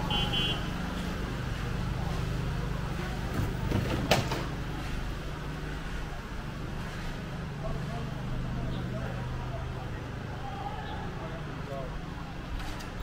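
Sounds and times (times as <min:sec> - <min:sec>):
street noise: 0:00.0 - 0:13.0.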